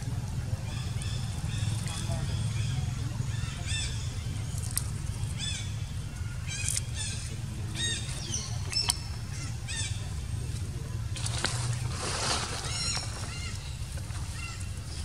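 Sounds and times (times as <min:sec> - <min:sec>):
steady low hum: 0:00.0 - 0:15.0
high-pitched chirping calls: 0:12.2 - 0:15.0.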